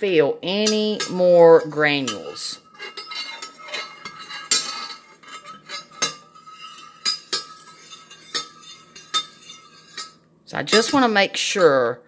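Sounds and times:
spoon clinking against a dish: 0.6s - 10.2s.

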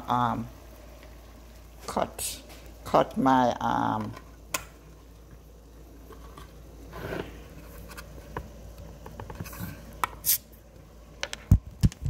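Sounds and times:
small kitchen clicks: 3.9s - 4.8s.

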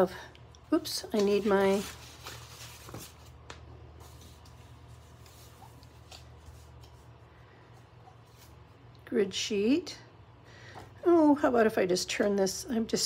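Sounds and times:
steady low hum: 0.0s - 13.0s
paper rustling: 1.0s - 7.1s.

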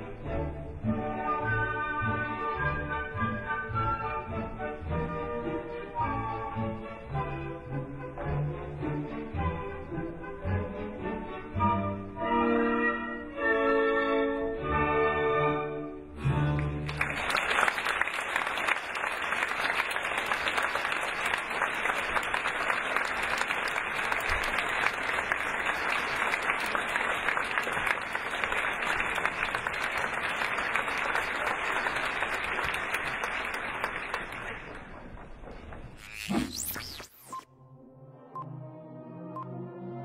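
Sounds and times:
audience applauding: 16.6s - 35.1s.

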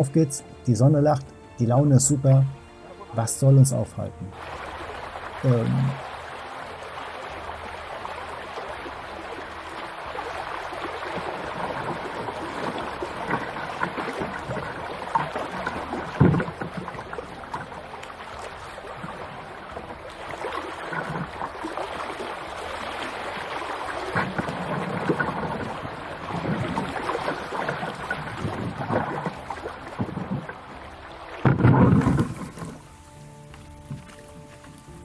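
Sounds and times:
river water rushing over stones: 4.3s - 32.9s
low thump: 31.4s - 32.7s.

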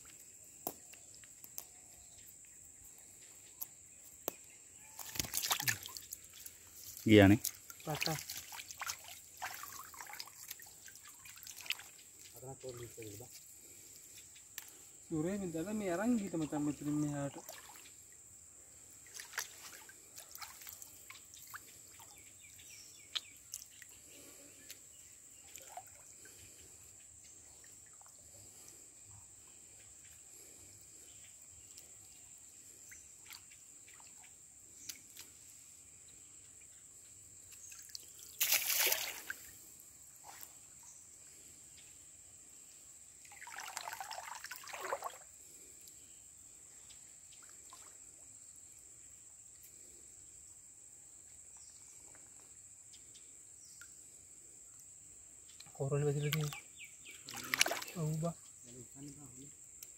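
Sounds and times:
water dripping: 3.6s - 12.4s, 19.0s - 24.0s, 57.2s - 58.2s
water trickling: 4.9s - 13.2s, 43.2s - 45.3s, 57.2s - 58.4s
loud water splashes: 38.4s - 39.3s, 57.3s - 58.0s.

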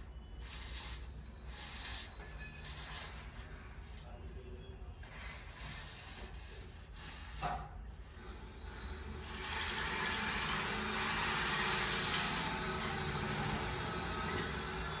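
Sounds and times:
curtain motor whirring: 0.0s - 3.4s, 8.1s - 15.0s.

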